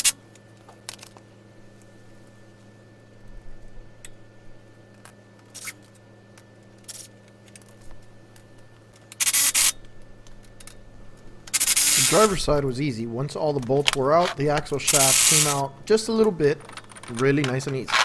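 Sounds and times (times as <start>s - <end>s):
metal tools clicking and scraping: 15.0s - 18.0s.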